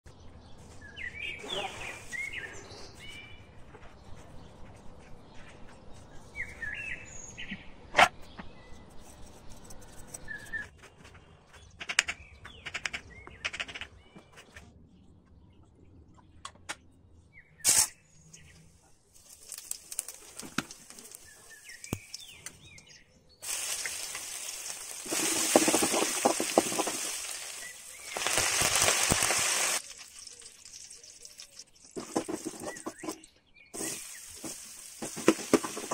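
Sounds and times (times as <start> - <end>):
seeds frying in hot oil: 19.1 - 22.8, 23.4 - 33.2, 33.8 - 35.9
crackling and popping: 19.2 - 33.2, 33.8 - 35.9.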